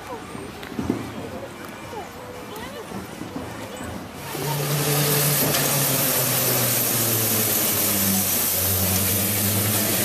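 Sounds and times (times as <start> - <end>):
steam vehicle hissing: 4.0 - 10.0.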